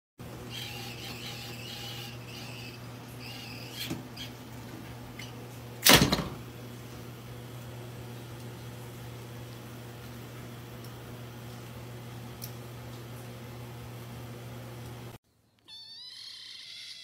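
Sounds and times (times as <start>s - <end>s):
loud bang against door: 5.8s - 6.4s.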